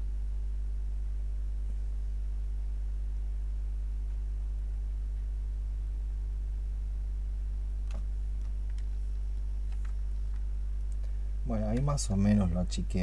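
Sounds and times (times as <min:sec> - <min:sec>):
electrical hum with buzz: 0:00.0 - 0:13.0.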